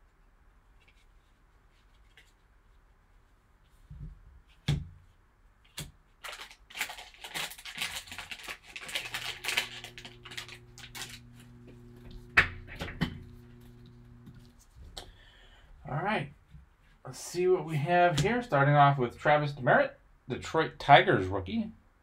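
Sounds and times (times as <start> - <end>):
foil wrapper crinkling and tearing: 6.2 - 12.2
faint low hum: 8.8 - 16.4.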